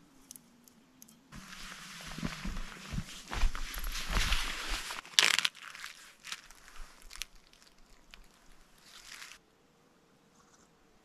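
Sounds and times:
footsteps crunching in snow: 0:01.4 - 0:09.4.

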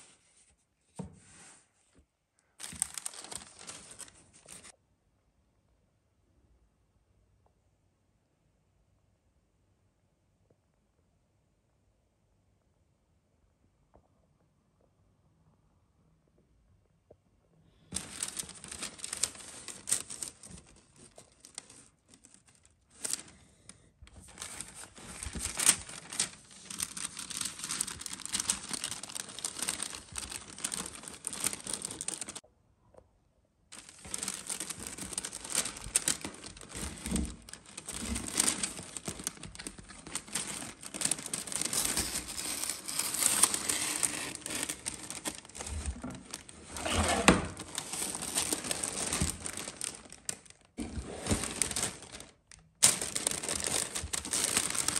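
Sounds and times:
paper and plastic crinkling: 0:02.6 - 0:04.7, 0:17.9 - 0:32.4, 0:33.7 - 0:54.9.

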